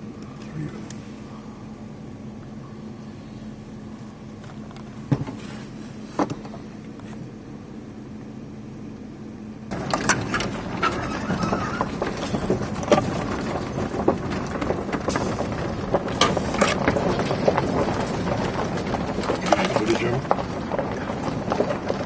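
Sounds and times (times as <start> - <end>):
faint steady hum: 0.0 - 22.0
vehicle on rough dirt track: 0.0 - 22.0
rattles and knocks: 9.7 - 22.0.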